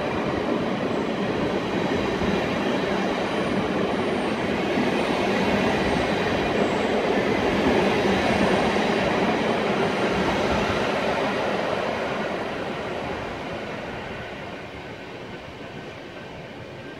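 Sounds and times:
train wheels on rails: 0.0s - 16.9s.

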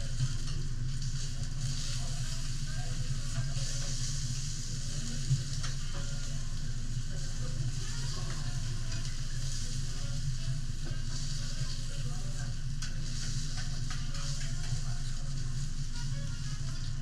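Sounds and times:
steak sizzling on a griddle: 0.0s - 17.0s
knife and spatula on griddle: 7.3s - 10.0s, 10.8s - 17.0s.

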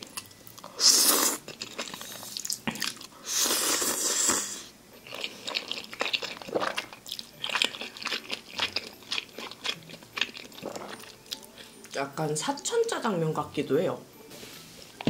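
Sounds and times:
wet chewing: 5.0s - 11.6s.

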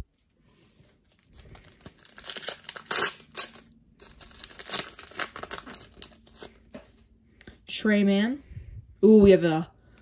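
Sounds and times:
foil wrapper tearing and crinkling: 1.1s - 6.7s.

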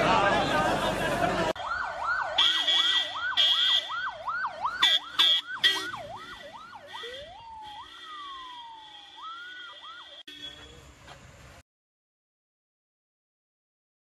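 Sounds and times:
emergency vehicle siren: 1.4s - 10.5s
vehicle horn blasts: 4.8s - 10.9s.

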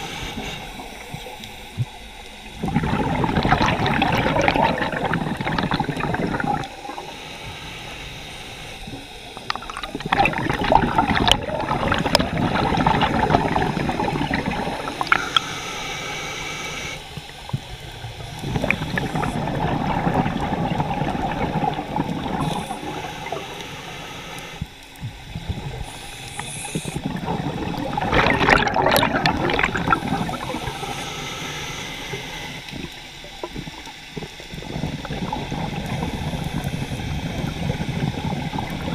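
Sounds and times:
regulator bubbles exhaled underwater: 0.0s - 7.2s, 8.7s - 38.9s
diver inhaling through regulator: 2.6s - 9.1s, 10.8s - 17.1s, 17.7s - 24.8s, 25.5s - 32.7s.

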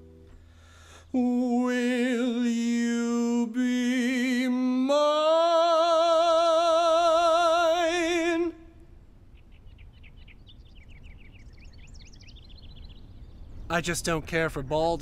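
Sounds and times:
man singing long high note: 1.1s - 8.8s
faint bird chirps: 8.9s - 14.1s.

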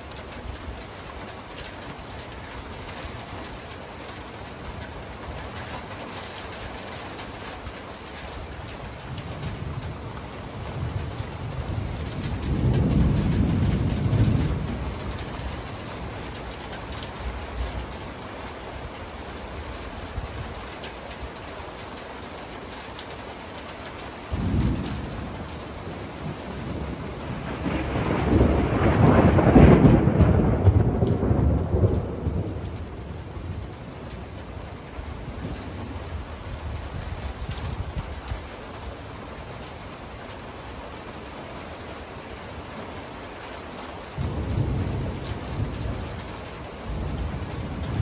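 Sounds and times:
thunder rumbling: 0.0s - 19.0s, 24.2s - 39.6s, 44.0s - 48.0s
steady rain: 0.0s - 48.0s.

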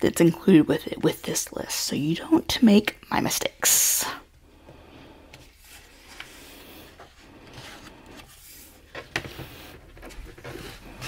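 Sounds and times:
book pages rustling: 5.3s - 11.0s.

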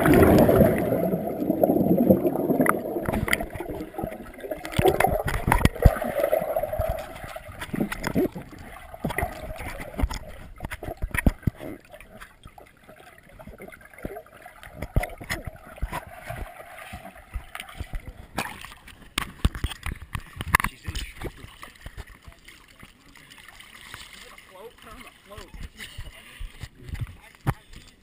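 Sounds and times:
underwater bubbling rush: 0.0s - 27.1s
clicks and knocks on camera: 9.0s - 11.6s, 17.8s - 22.0s.

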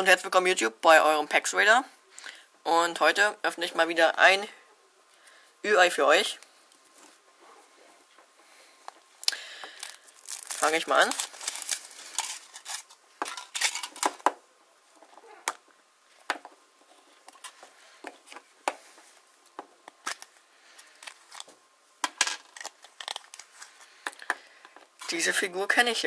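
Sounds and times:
plastic parts set on table: 8.9s - 14.4s, 19.6s - 25.2s
foil wrapper crinkling: 9.2s - 14.2s, 20.0s - 21.6s, 22.4s - 24.0s.

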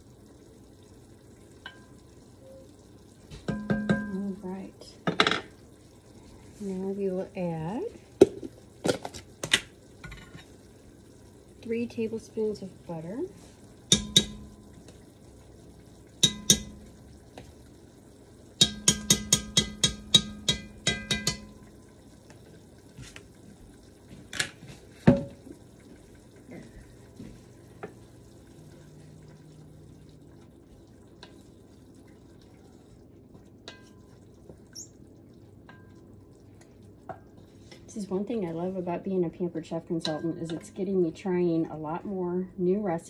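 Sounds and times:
spoon tapping cast-iron pot: 1.6s - 2.0s, 3.4s - 4.4s, 13.9s - 14.7s, 16.2s - 17.0s, 18.6s - 21.7s, 33.6s - 34.1s, 40.0s - 40.8s.

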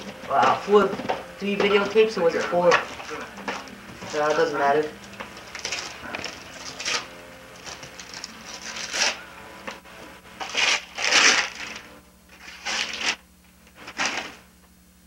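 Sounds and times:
wrapping paper tearing: 5.4s - 9.2s, 10.4s - 14.5s.

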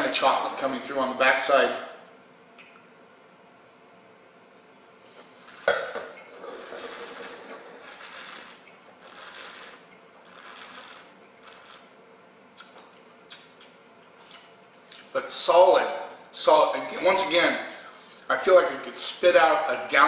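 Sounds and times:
person slurping wine: 5.4s - 8.5s.

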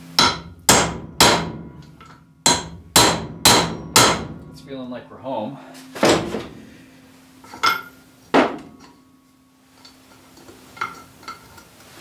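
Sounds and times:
hammer striking metal: 0.2s - 4.8s, 5.9s - 6.6s.

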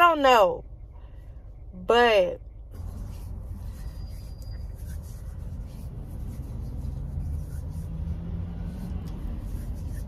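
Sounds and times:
car engine: 0.0s - 10.0s
road noise inside car: 0.0s - 10.0s.

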